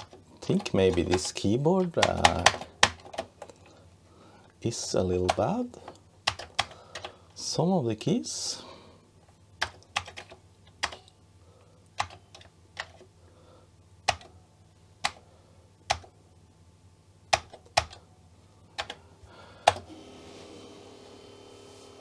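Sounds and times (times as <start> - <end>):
keyboard keys clicking: 0.0 - 3.6, 6.2 - 7.1, 9.6 - 11.1, 11.9 - 13.1, 14.0 - 14.4, 15.8 - 16.1, 17.3 - 18.0, 18.8 - 19.0.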